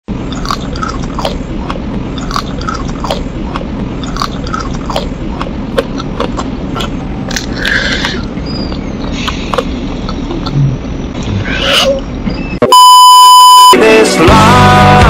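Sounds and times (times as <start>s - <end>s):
biting and chewing: 0.2s - 10.6s
mouth clicks and smacks: 0.3s - 10.7s.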